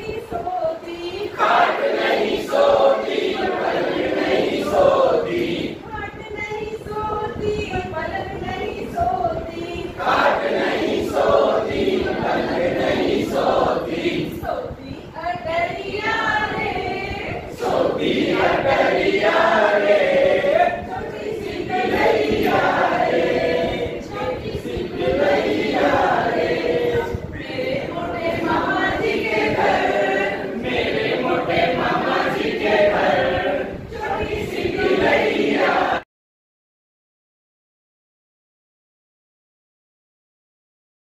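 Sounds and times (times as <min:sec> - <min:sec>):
group singing in chorus: 0:00.7 - 0:05.9, 0:08.9 - 0:14.8, 0:15.6 - 0:36.0.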